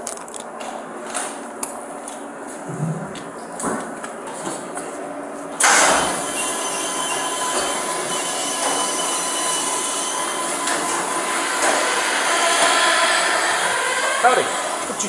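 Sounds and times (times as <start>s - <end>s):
mechanical noise with metallic whine: 5.1s - 15.0s.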